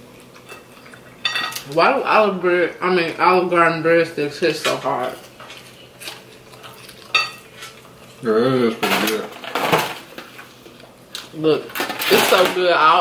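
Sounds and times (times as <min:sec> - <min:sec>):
forks clinking on plates: 0:00.4 - 0:01.7, 0:06.6 - 0:07.8
close-up chewing: 0:05.5 - 0:08.2
person humming: 0:08.2 - 0:08.8.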